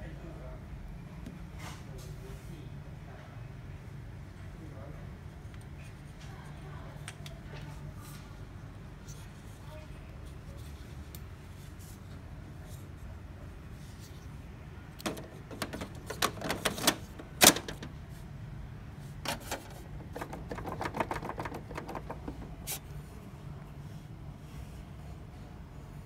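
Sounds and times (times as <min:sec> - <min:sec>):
plastic clicks and knocks: 0:15.0 - 0:17.9, 0:19.3 - 0:22.6.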